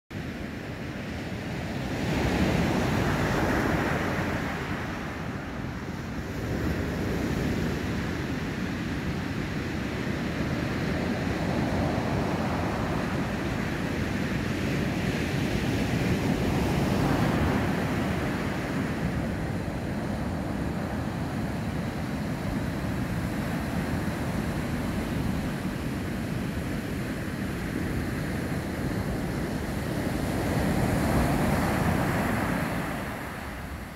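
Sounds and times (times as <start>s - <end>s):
surf breaking on beach: 10.3s - 33.9s.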